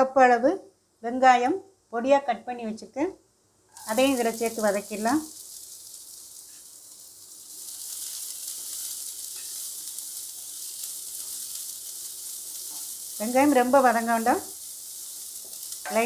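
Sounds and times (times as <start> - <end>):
onions sizzling in oil: 3.6 - 16.0
spatula stirring in wok: 3.7 - 16.0.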